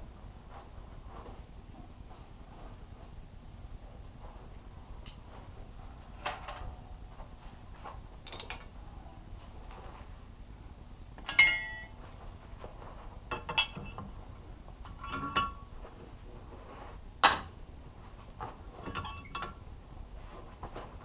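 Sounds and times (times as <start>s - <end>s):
tools clanking on steel anvil: 11.2s - 12.0s, 13.3s - 14.1s, 14.9s - 15.7s, 18.8s - 19.8s.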